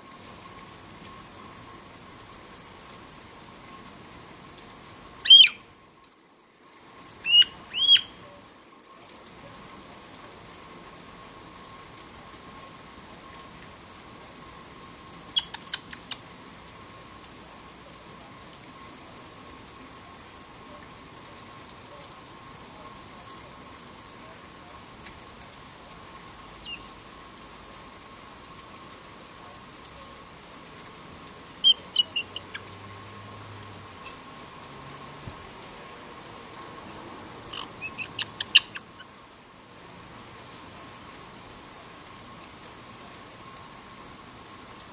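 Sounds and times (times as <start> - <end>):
parrot calls and chirps: 5.2 - 5.6, 7.2 - 8.2, 15.3 - 16.2, 26.6 - 26.9, 31.6 - 32.7, 37.4 - 39.1.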